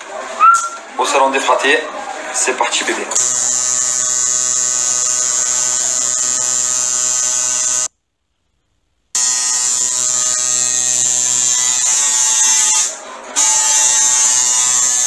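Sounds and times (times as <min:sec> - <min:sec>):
tattoo machine buzzing: 0:03.2 - 0:07.9, 0:09.2 - 0:15.0.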